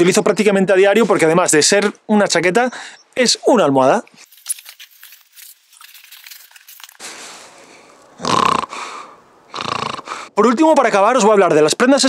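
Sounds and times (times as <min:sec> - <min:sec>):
man fake snoring: 0:08.2 - 0:10.3.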